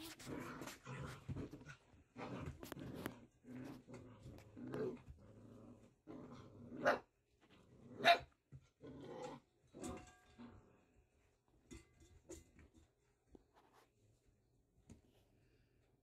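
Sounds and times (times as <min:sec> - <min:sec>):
puppies growling: 0:00.0 - 0:10.8.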